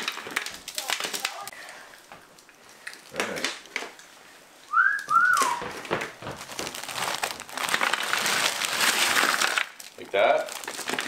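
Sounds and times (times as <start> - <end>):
frozen fruit rattling onto a tray: 0.0 - 1.6, 5.2 - 11.0
plastic bag crinkling: 0.0 - 4.1, 4.8 - 11.0
whistle-like notes: 4.7 - 5.7.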